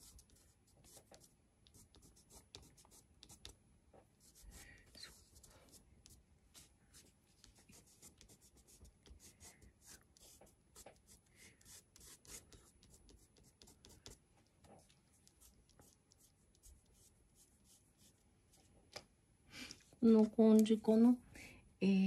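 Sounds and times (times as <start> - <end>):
fingertips rubbing on paper: 4.3 - 18.2.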